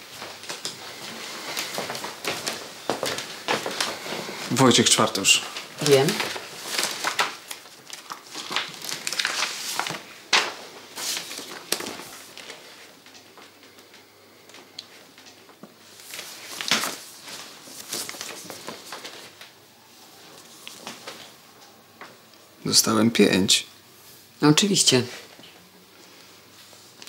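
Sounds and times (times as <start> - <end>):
paper sheets rustling: 0.0 - 21.4.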